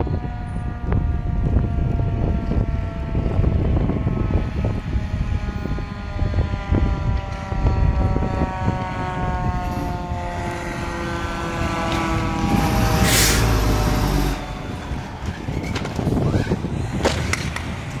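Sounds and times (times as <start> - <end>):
fire engine diesel engine passing: 0.0 - 17.0
air brakes hissing: 13.0 - 13.6.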